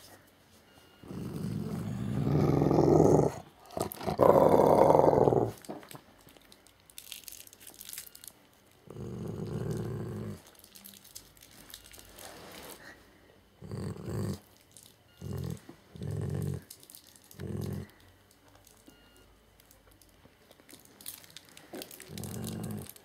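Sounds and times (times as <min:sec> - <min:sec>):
dog growling low: 0:01.0 - 0:05.6, 0:08.8 - 0:10.5, 0:13.6 - 0:14.5, 0:15.2 - 0:16.7, 0:17.3 - 0:18.0, 0:21.7 - 0:23.0.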